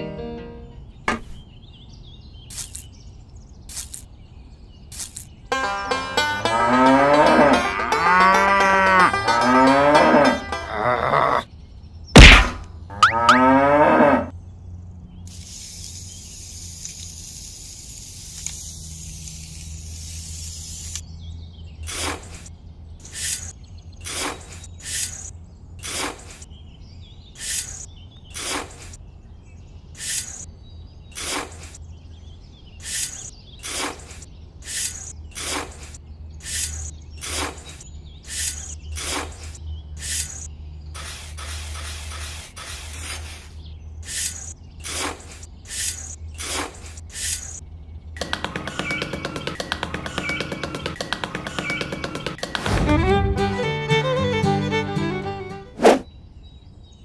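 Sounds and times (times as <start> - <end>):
sharp knock: 1.1 - 1.4, 12.2 - 12.7
cow mooing: 6.4 - 11.4, 12.9 - 14.3
faint hiss: 15.3 - 21.0
trowel scraping damp sand: 24.1 - 26.5, 28.4 - 29.0, 31.2 - 31.8, 32.8 - 47.6.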